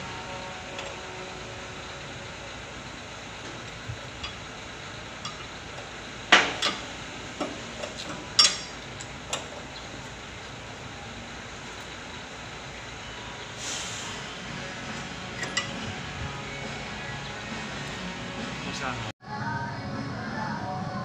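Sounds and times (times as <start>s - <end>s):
wrench clinking on metal: 5.2s - 9.6s, 15.4s - 15.8s.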